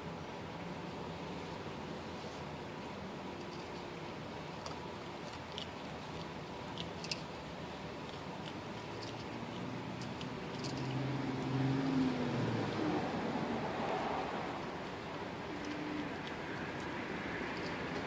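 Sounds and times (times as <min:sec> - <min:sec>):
kibble crunching: 0:04.5 - 0:11.0
low drone: 0:10.6 - 0:18.0.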